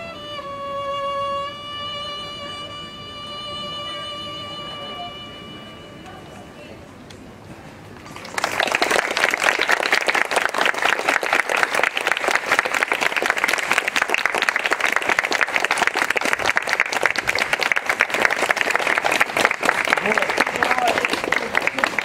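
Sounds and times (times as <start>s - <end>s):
audience applauding: 8.0s - 22.0s.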